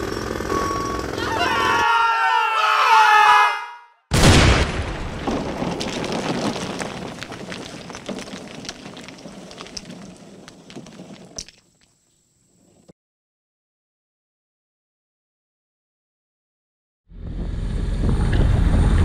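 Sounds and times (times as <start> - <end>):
wrecking ball crashing through wall: 4.1 - 11.5
rattle of falling rubble: 4.2 - 12.0.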